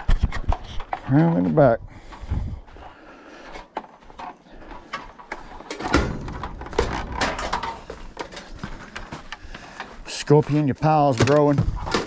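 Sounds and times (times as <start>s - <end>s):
footsteps: 0.0s - 12.0s
handling knocks and rustles: 3.6s - 12.0s.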